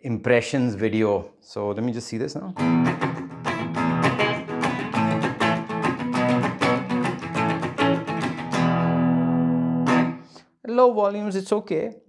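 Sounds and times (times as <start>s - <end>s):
electric guitar chord strums: 2.6s - 10.4s.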